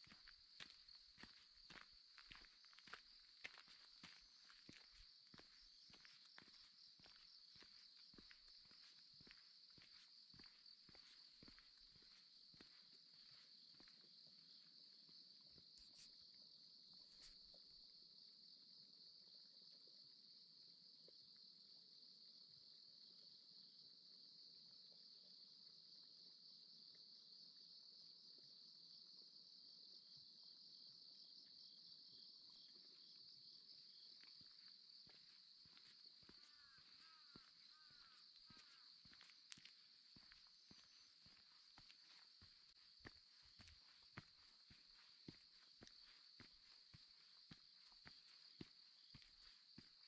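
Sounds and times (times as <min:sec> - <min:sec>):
insects trilling: 0:00.0 - 0:14.7, 0:32.1 - 0:50.0
faint footsteps on a path: 0:00.0 - 0:17.6, 0:32.6 - 0:50.0.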